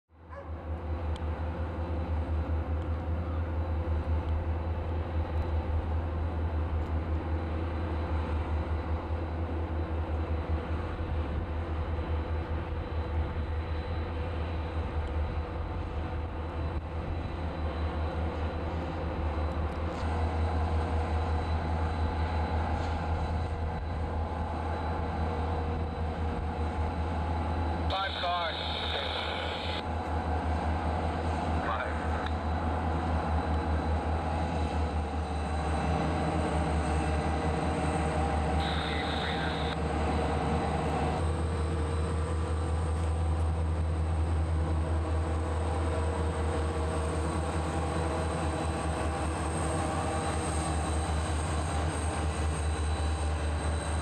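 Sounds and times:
diesel locomotive engine drone: 0.1 - 54.0.

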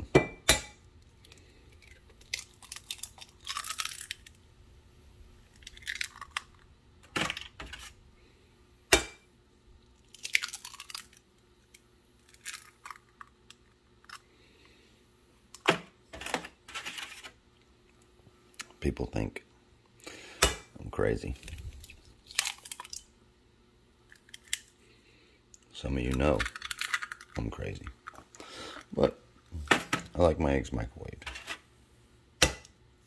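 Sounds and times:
eggshell tapping and cracking: 26.4 - 27.4.

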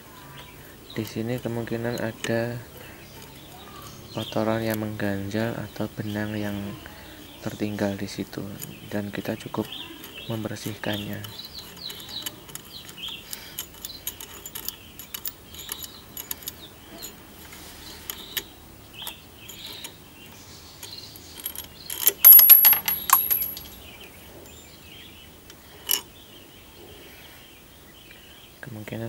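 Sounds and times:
small metal parts clinking: 7.4 - 20.0, 20.8 - 24.0, 25.8 - 26.1.

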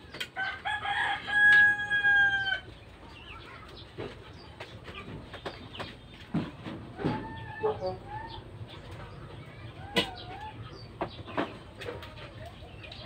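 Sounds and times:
rooster crowing: 0.4 - 2.6.

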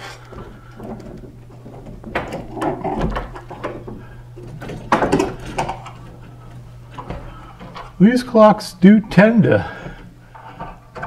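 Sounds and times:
wooden knocks clicks and scrapes: 0.0 - 8.0
steady low hum: 0.0 - 11.0.

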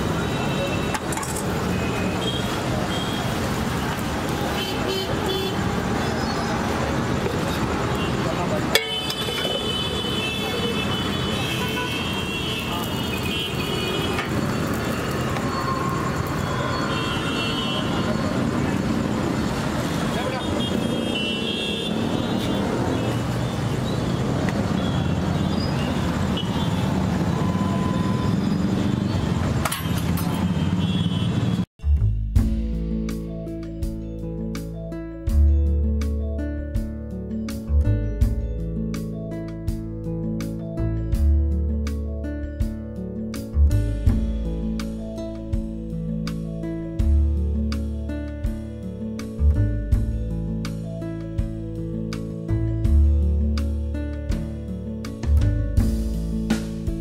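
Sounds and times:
street traffic noise: 0.0 - 57.0
vehicle horn toots: 7.9 - 14.4, 16.4 - 18.3, 29.8 - 31.6.

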